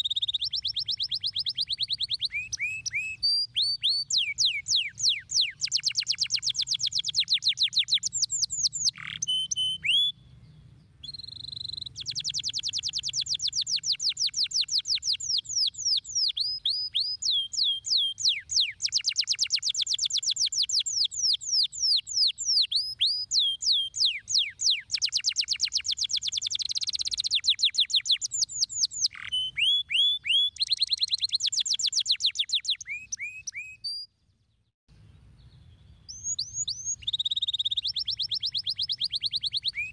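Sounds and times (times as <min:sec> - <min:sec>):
canary singing trills: 0:00.0 - 0:34.1, 0:35.2 - 0:39.9.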